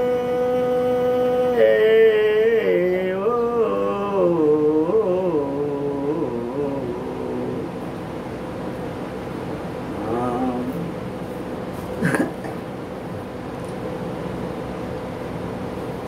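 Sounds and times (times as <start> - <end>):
man singing unaccompanied: 0.0 - 8.0, 9.9 - 11.1.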